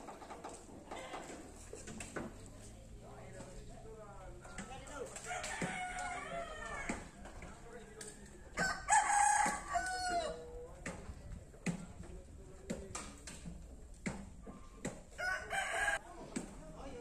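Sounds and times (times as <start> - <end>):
rooster crowing: 5.2 - 7.1, 8.5 - 10.5, 15.2 - 16.0.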